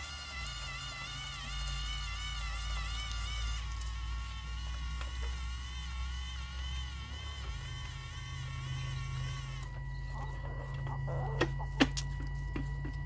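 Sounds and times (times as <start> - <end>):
small electric motor whining: 0.0 - 13.0.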